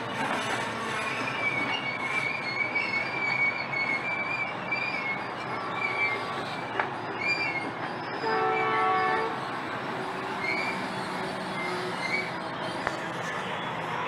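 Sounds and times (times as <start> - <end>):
train wheels on rails: 0.0 - 14.0
wheel squeals: 0.0 - 14.0
train horn: 8.2 - 9.4.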